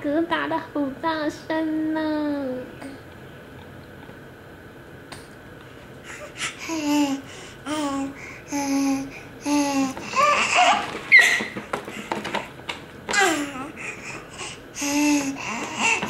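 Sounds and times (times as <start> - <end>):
baby babbling: 6.1 - 11.4, 13.1 - 16.0
baby squealing: 10.1 - 11.6.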